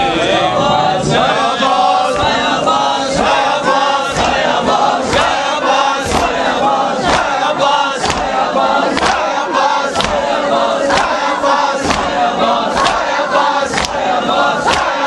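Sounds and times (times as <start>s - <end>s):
crowd of men chanting: 0.0s - 15.0s
hand-slaps on chest: 6.0s - 6.4s, 8.0s - 9.3s, 9.9s - 10.2s, 10.9s - 11.2s, 11.8s - 12.2s, 13.7s - 14.0s, 14.7s - 15.0s.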